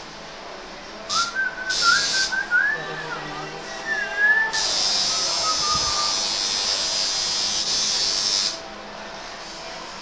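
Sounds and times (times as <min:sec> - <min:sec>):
tattoo machine buzzing: 0:04.6 - 0:08.6.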